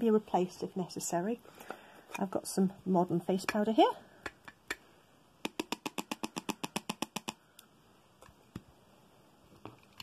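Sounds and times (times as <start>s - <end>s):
rapid tapping on plastic jar: 5.4s - 7.4s.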